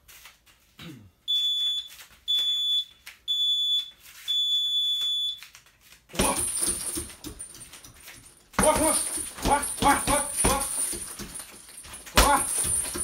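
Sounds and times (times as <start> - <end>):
electronic timer beeping: 1.3 - 5.4.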